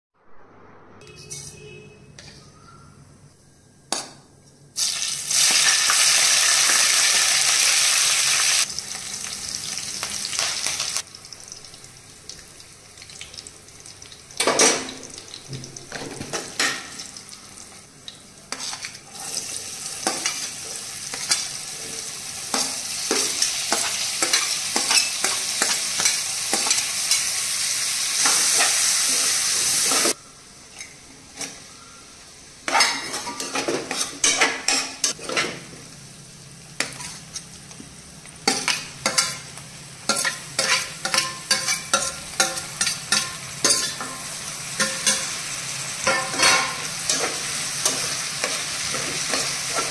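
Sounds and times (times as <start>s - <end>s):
steel spoon scraping a pan: 1.0s - 2.6s, 18.5s - 20.5s, 22.5s - 27.4s, 32.7s - 35.6s, 36.8s - 37.5s, 40.1s - 45.4s, 46.0s - 49.9s
oil sizzling in a frying pan: 4.8s - 30.2s, 34.7s - 49.9s.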